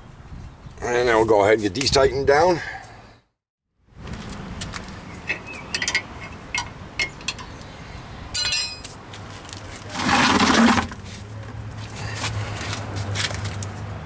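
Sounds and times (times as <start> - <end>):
tire scraping on pavement: 3.9 - 6.3, 9.0 - 14.0
metallic clicks at wheel hub: 5.2 - 7.7
metal parts clinking: 5.3 - 7.5, 8.4 - 9.0.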